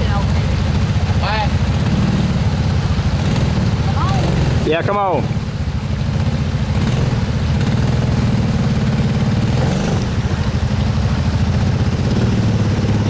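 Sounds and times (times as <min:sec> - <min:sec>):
off-road vehicle engine running: 0:00.0 - 0:13.0.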